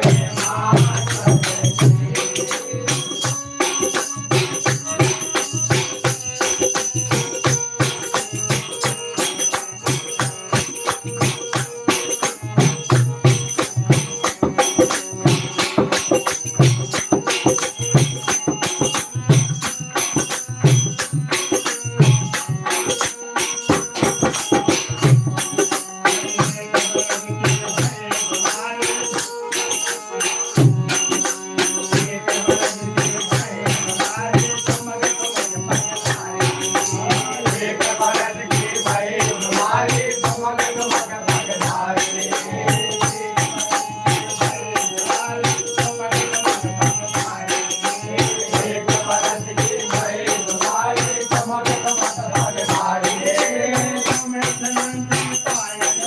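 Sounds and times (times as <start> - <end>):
hand drum beat: 0.0 - 28.0
harmonium melody: 0.0 - 56.0
jingling percussion: 0.0 - 56.0.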